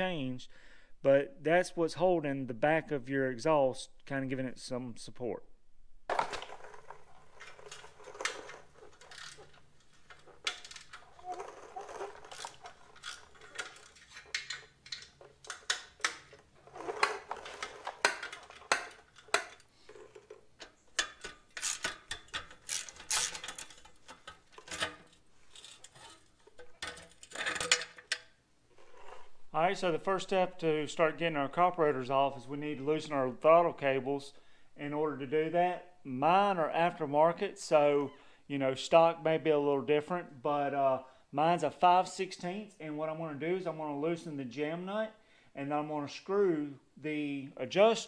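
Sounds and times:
metal parts clinking: 6.1s - 28.3s.

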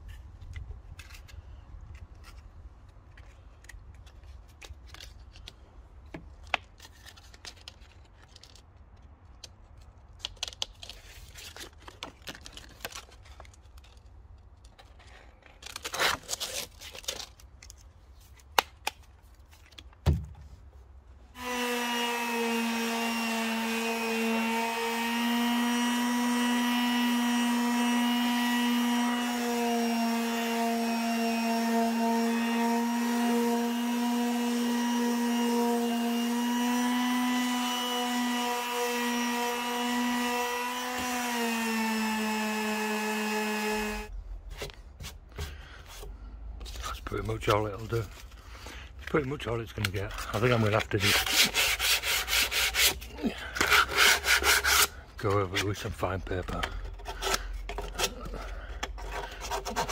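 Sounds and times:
electric sander humming: 21.4s - 44.1s
hand sanding wood: 21.4s - 44.1s, 50.3s - 55.9s, 59.0s - 59.9s.

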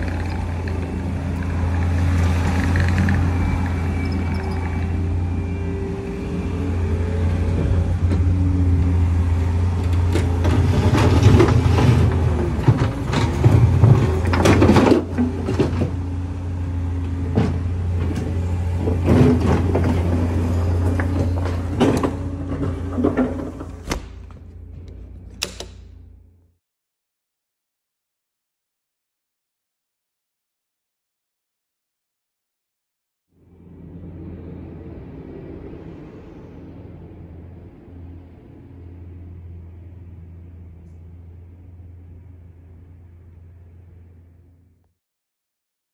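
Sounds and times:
diesel engine running: 0.0s - 26.4s.

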